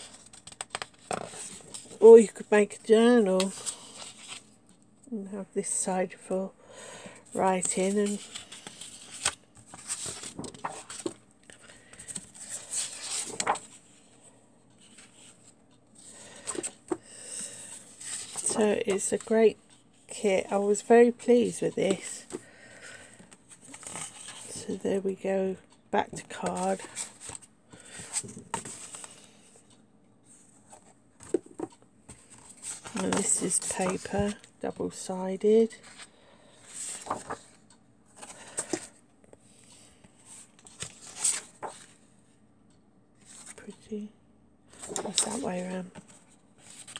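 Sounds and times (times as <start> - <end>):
paper and card rustling: 0.0 - 4.7, 7.4 - 14.2, 14.8 - 19.6, 23.5 - 24.8, 26.1 - 29.4, 30.7 - 35.0, 35.8 - 39.0, 40.3 - 42.0, 44.7 - 46.9.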